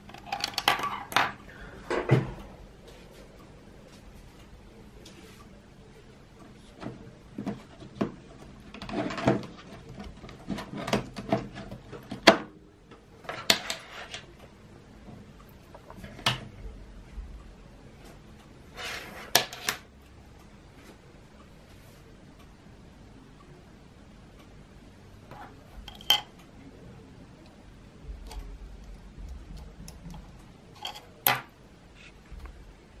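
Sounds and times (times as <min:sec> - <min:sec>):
objects handled on a desk: 0:06.8 - 0:12.5, 0:13.2 - 0:14.3, 0:18.8 - 0:19.8.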